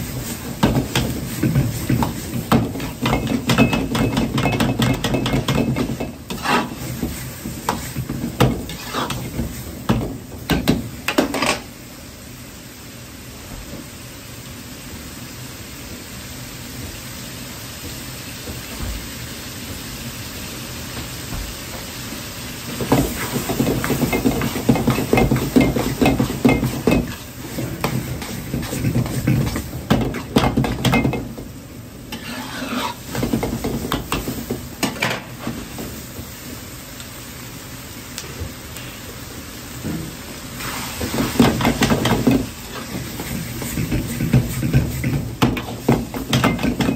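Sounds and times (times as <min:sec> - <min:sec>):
food sizzling in a wok: 0:00.0 - 0:46.9
metal ladle scraping a wok: 0:06.3 - 0:06.9, 0:08.7 - 0:09.3, 0:32.1 - 0:33.1.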